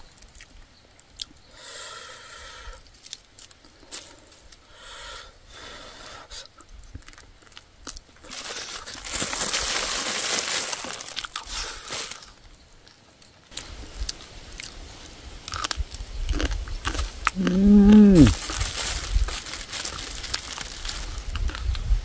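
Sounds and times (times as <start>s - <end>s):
plastic bag crinkling: 7.0s - 12.4s, 16.9s - 21.8s.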